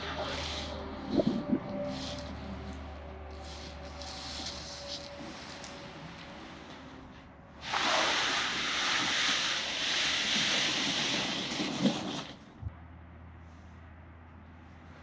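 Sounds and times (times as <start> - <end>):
tarp sliding with rustling swish: 0.0 - 6.5, 7.6 - 12.4.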